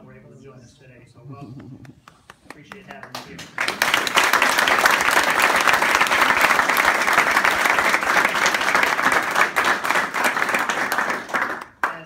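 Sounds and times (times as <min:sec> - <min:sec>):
crowd applauding: 0:01.9 - 0:12.0.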